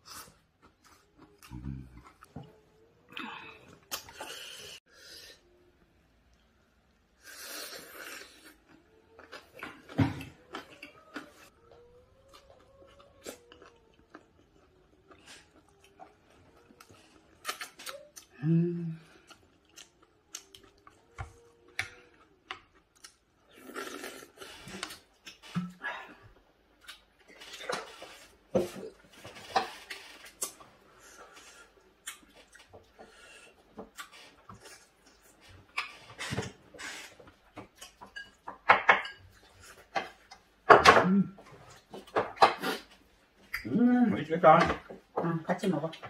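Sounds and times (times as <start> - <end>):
chewing: 7.5 - 18.4, 19.0 - 25.4
person humming: 18.3 - 19.3.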